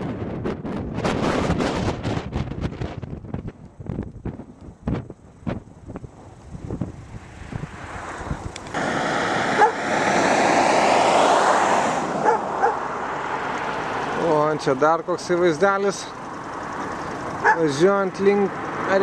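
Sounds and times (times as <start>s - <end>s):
wind buffeting the microphone: 0.0s - 8.8s
car passing by: 7.1s - 14.7s.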